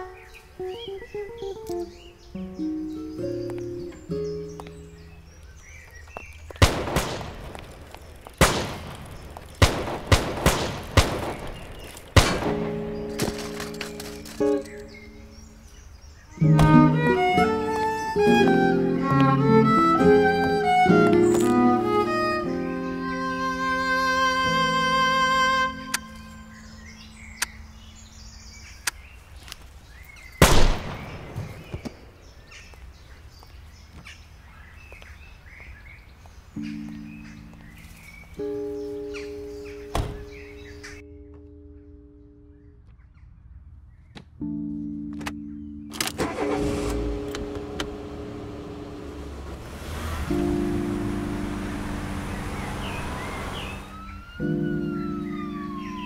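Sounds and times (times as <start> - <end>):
faint gunshot cracks: 6.6 - 7.6, 8.4 - 9.0, 9.6 - 13.4, 30.4 - 32.0
handgun shot: 6.6 - 7.6, 8.4 - 9.0, 9.6 - 14.0, 30.4 - 32.0
pistol gunshots echoing: 6.6 - 13.6, 30.4 - 32.1.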